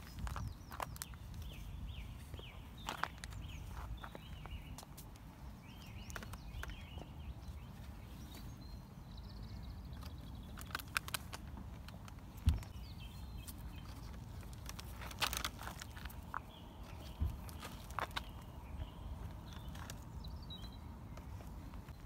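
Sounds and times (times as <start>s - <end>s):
wind rumbling on microphone: 0.0s - 4.7s.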